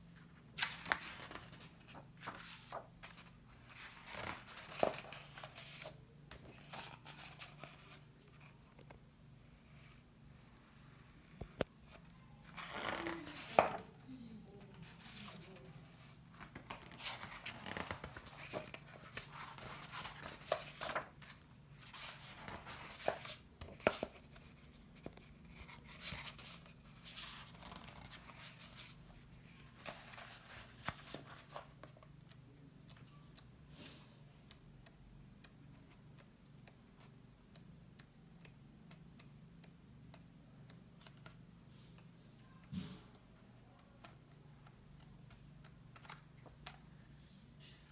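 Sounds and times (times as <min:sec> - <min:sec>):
book pages turning: 0:00.1 - 0:09.0, 0:11.6 - 0:13.9, 0:14.7 - 0:32.4, 0:45.6 - 0:46.8.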